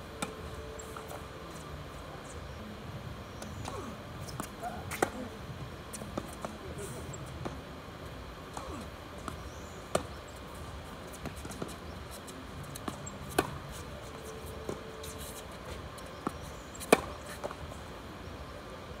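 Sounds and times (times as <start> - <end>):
tennis racket hitting ball: 3.5 - 5.2, 16.2 - 17.6.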